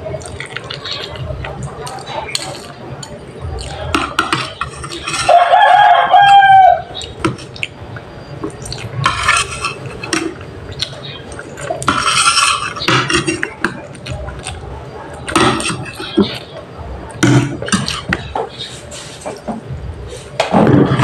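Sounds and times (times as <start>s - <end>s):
cutlery clinking on a plate: 3.7s - 6.5s, 9.0s - 10.9s, 11.6s - 13.8s, 15.3s - 16.4s.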